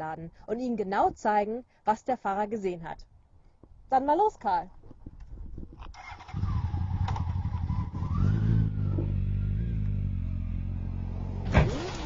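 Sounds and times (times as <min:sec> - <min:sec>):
motorcycle engine pulling away: 0:06.0 - 0:12.0.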